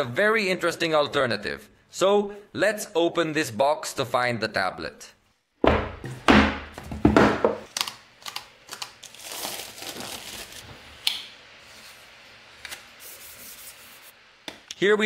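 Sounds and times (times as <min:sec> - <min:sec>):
paper crinkling: 0:07.7 - 0:10.8
film peeling rustle: 0:07.7 - 0:10.9.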